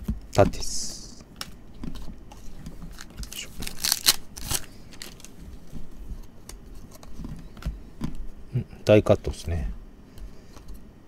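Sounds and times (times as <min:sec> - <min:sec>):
trading cards being shuffled: 0:01.8 - 0:05.8.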